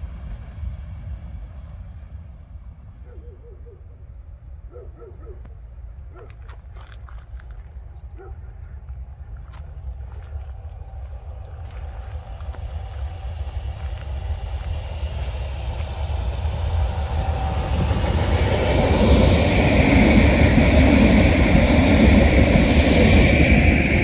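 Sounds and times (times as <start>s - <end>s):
train passing rumble: 0.0s - 24.0s
high whine: 9.8s - 24.0s.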